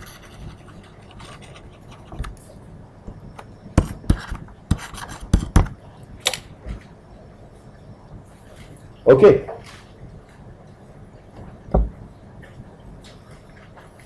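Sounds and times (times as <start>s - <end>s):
stylus scratching on tablet: 0.0s - 2.2s, 3.8s - 5.6s.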